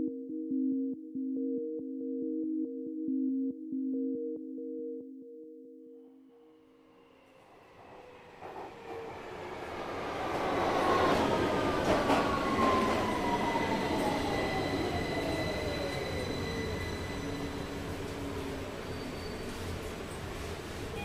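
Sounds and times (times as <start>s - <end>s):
subway train rumble: 6.8s - 21.0s.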